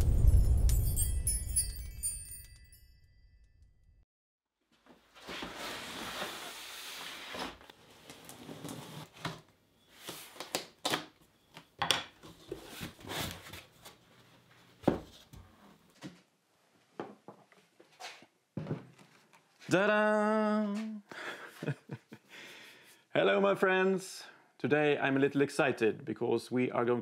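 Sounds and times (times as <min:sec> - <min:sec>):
cardboard scraping and rustling: 0:05.1 - 0:10.5, 0:12.2 - 0:14.0.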